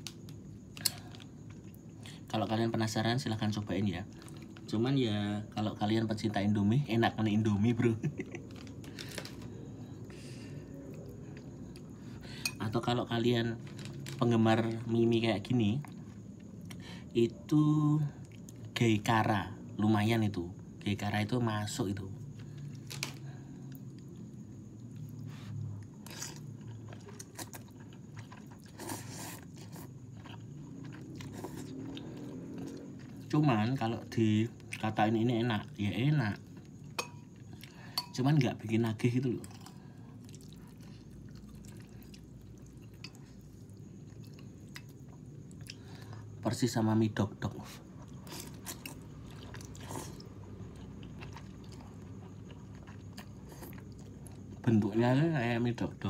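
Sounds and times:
person chewing and slurping noodles: 24.7s - 33.3s, 39.5s - 46.3s, 47.9s - 54.6s.

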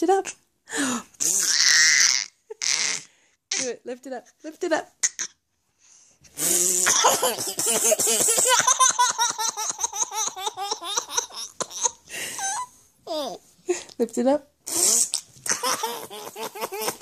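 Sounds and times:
toddler laughing: 6.9s - 13.4s, 15.5s - 17.0s.

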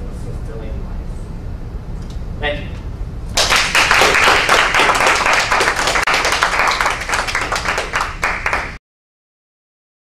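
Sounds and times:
audience clapping: 3.4s - 8.8s.

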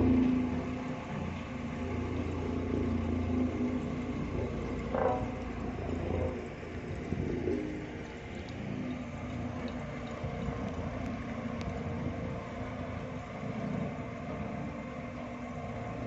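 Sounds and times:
diesel machinery engine rumbling: 0.0s - 16.0s.

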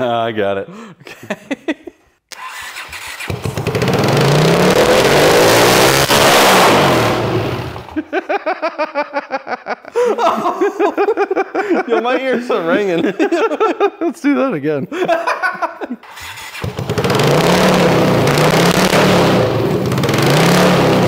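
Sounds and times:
motorcycle engine revving: 2.4s - 8.0s, 16.0s - 21.0s.

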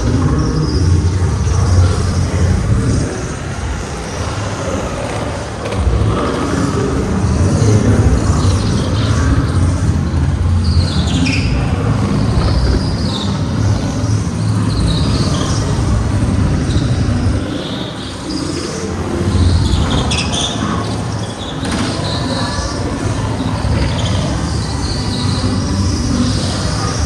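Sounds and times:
go-kart rumbling: 0.0s - 27.0s
tyre squeals: 10.6s - 13.6s.

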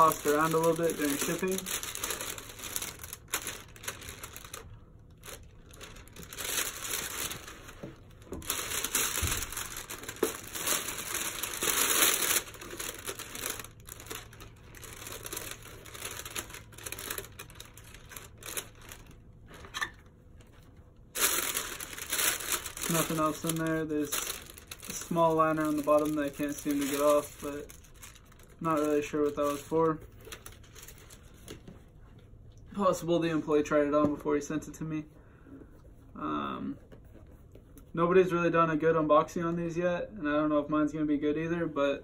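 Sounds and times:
foil wrapping paper crinkling: 0.0s - 31.8s.

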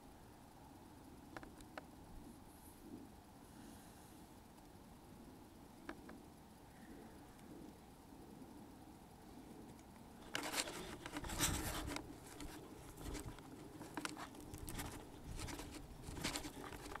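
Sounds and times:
camera handling noise: 10.2s - 17.0s.

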